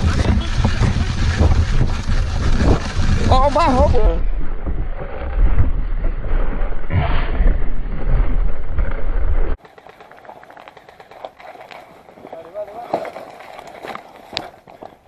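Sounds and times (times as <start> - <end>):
wind buffeting microphone: 0.0 - 9.6
faint clicks and rustles: 7.9 - 15.0.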